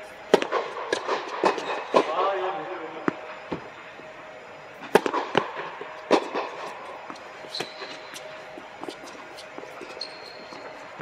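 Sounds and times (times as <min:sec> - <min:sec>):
tennis ball bouncing: 0:00.3 - 0:02.1, 0:08.8 - 0:10.7
short high squeak: 0:07.5 - 0:08.0, 0:09.8 - 0:10.8.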